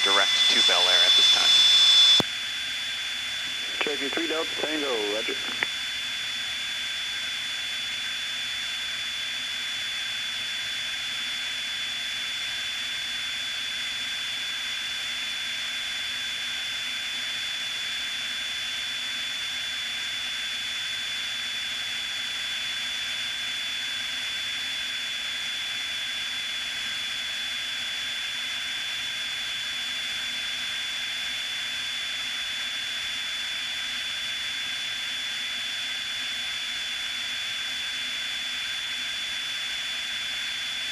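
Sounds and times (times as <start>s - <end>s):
propeller plane engine cruising: 0.0s - 8.9s.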